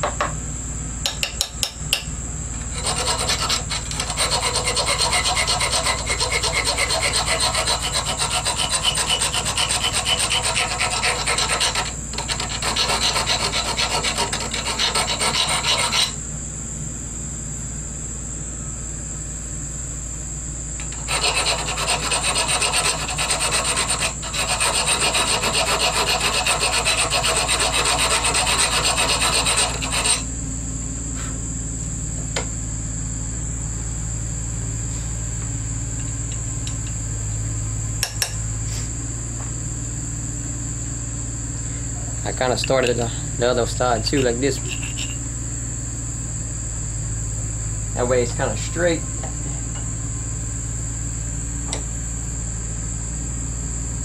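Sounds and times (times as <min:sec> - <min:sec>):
file rasping on metal: 0:02.6 - 0:16.2, 0:20.8 - 0:30.3, 0:44.1 - 0:45.2.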